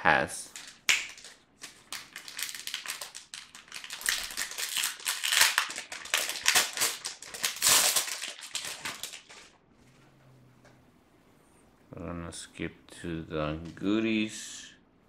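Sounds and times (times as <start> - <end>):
foil wrapper crinkling: 0.6 - 9.6.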